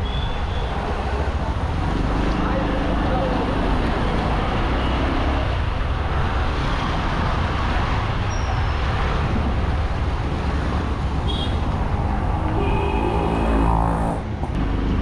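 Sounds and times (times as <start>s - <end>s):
street traffic: 0.0s - 15.0s
wind rumble on microphone: 5.4s - 13.0s.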